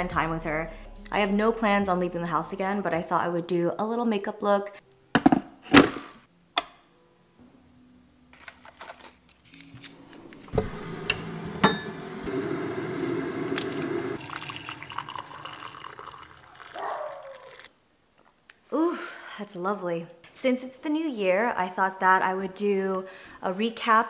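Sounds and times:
water pouring into a mug: 13.0 - 17.7.

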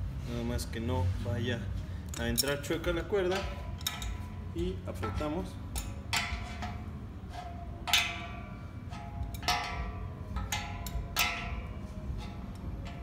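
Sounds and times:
wrench clinking on metal fitting: 2.1 - 6.8.

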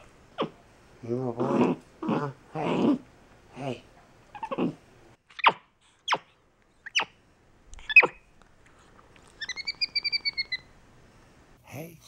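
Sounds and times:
monkey short sharp calls: 7.9 - 8.2.

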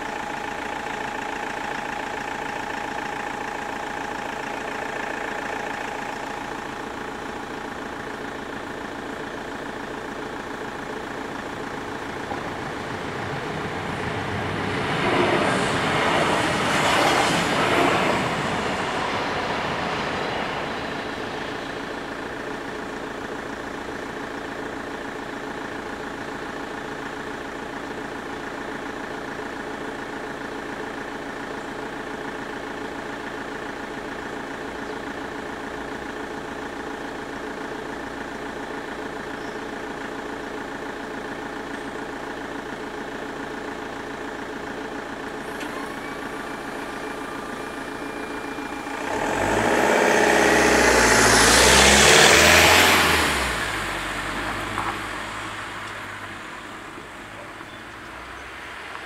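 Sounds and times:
level-crossing warning bells: 45.1 - 49.8.

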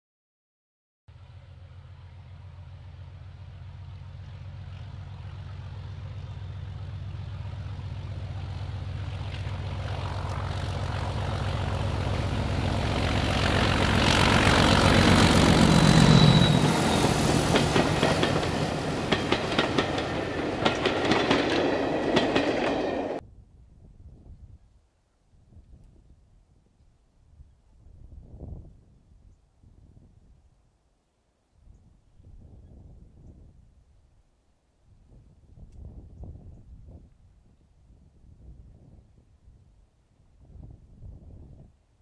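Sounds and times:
diesel locomotive engine: 1.1 - 23.2
train wheels clattering over rail joints: 13.2 - 23.2.

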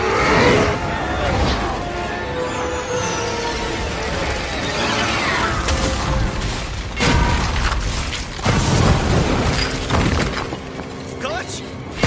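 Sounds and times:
music: 0.0 - 12.0
heavy crashes of stone and debris: 5.6 - 10.8.

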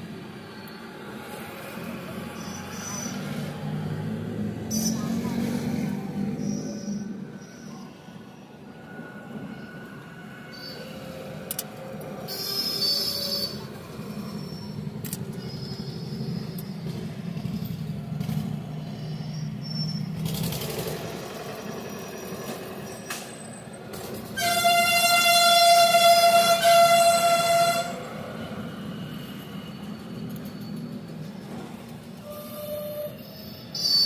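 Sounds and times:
traffic rumble: 0.0 - 32.4
vehicle horn blast: 24.4 - 28.0.

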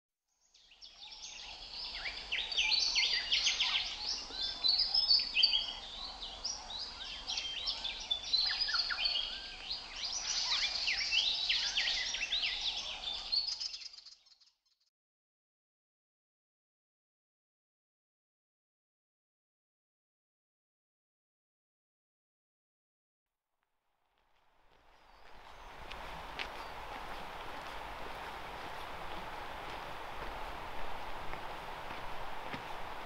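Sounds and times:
songbirds chirping and trilling: 0.4 - 14.6, 25.0 - 33.0.

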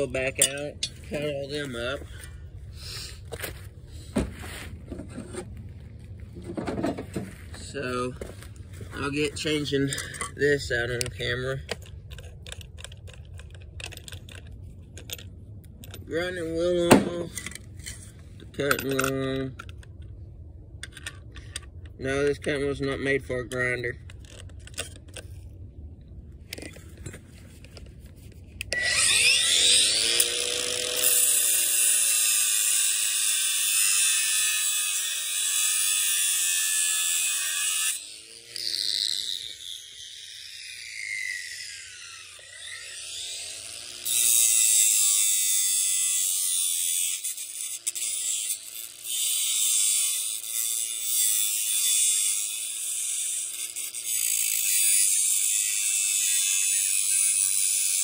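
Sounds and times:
angle grinder cutting metal: 16.0 - 19.4, 28.6 - 58.0.

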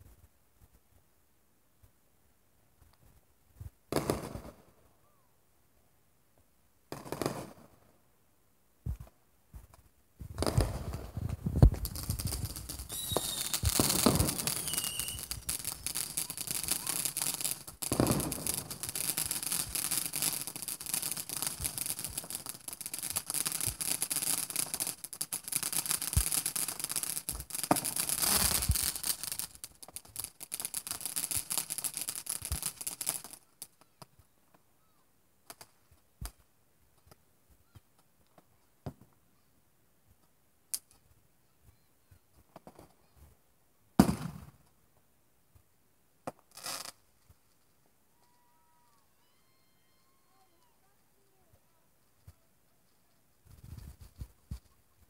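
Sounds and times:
fireworks crackling and popping: 2.8 - 4.9, 6.9 - 8.0, 8.8 - 34.7, 35.4 - 39.2, 40.1 - 43.3, 44.0 - 44.8, 45.5 - 55.0
loud firework bangs: 10.4 - 25.0, 25.7 - 29.5, 44.0 - 44.5.

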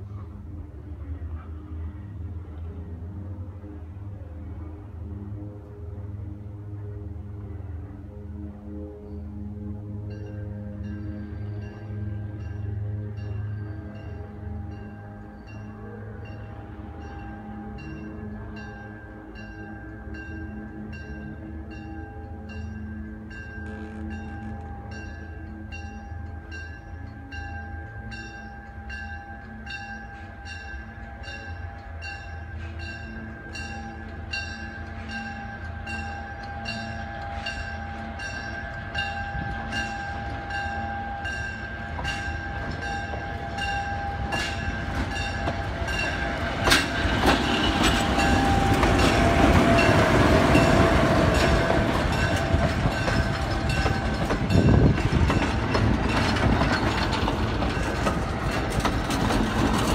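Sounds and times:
diesel locomotive engine rumble: 0.0 - 59.9
locomotive bell ringing: 10.1 - 59.9
wheels clicking on rail joints: 23.5 - 59.9.

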